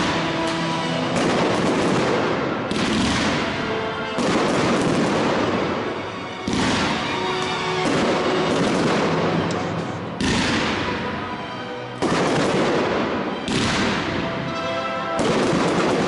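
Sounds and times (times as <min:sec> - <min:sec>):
firework crackle: 0:00.0 - 0:11.0, 0:12.0 - 0:14.2
firework shells booming: 0:00.0 - 0:11.2, 0:12.0 - 0:14.3, 0:15.2 - 0:16.0.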